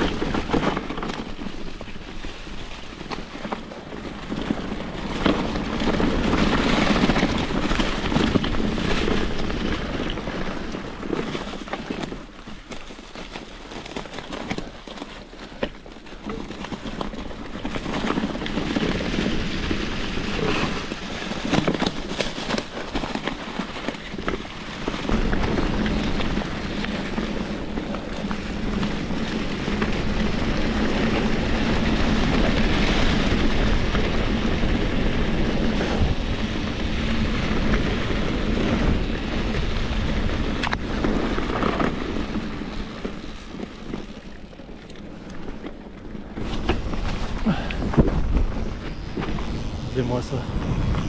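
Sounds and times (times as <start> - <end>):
bike tyres rolling over dry leaves: 0.0 - 51.0
wind on microphone: 23.6 - 43.3, 46.3 - 51.0.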